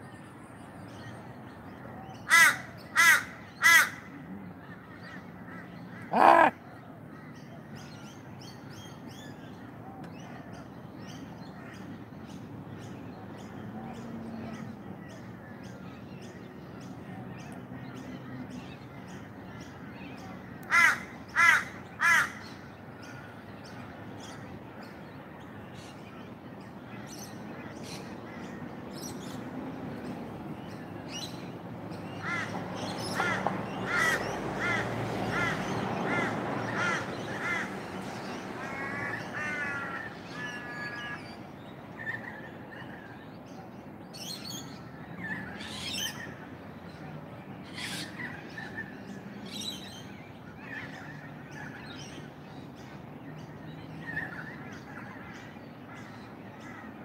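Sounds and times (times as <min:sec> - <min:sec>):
crows cawing: 0:02.3 - 0:04.1, 0:05.1 - 0:07.3, 0:20.7 - 0:22.4, 0:32.2 - 0:37.8, 0:38.6 - 0:41.2
small birds chirping: 0:05.5 - 0:06.6.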